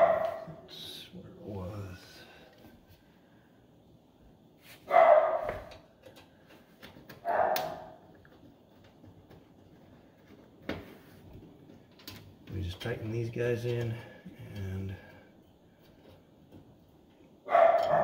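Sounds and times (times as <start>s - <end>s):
dog barking: 0.0s - 0.6s, 4.9s - 5.7s, 7.2s - 8.0s, 17.5s - 18.0s.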